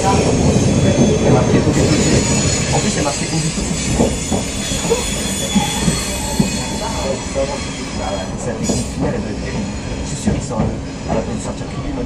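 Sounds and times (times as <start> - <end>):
train wheels rumbling on rail: 0.0 - 12.0
wheel squeals and clicks: 0.5 - 8.8.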